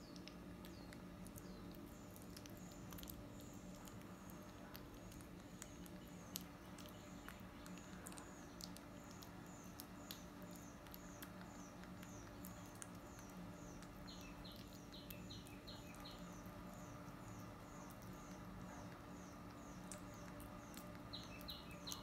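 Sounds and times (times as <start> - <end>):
monkey chewing clicks: 0.0 - 22.0
lower bird chirps: 5.0 - 22.0
bird chirping high: 19.2 - 22.0.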